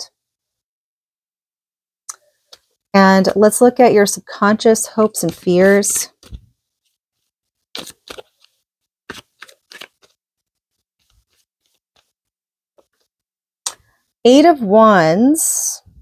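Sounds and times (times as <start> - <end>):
cards being shuffled: 5.2 - 6.5, 7.7 - 10.2, 11.0 - 12.2.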